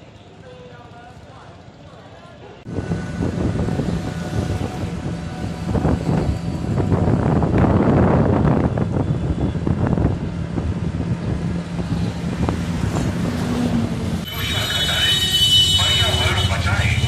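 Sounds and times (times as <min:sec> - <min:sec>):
auto-rickshaw engine running: 0:00.3 - 0:17.0
wind buffeting microphone: 0:02.7 - 0:14.2.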